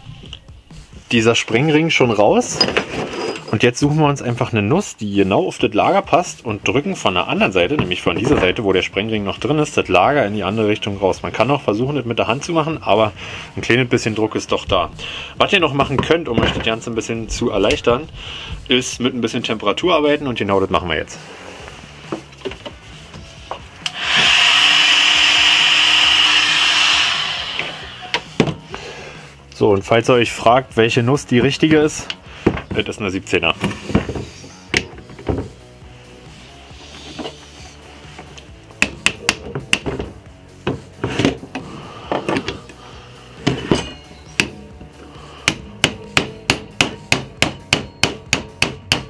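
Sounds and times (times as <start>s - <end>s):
heat gun blowing air: 23.8s - 28.4s.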